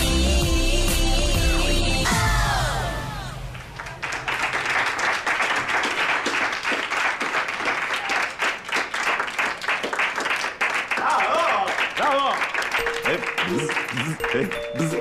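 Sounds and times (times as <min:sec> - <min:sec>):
audience applause: 0:03.4 - 0:15.0.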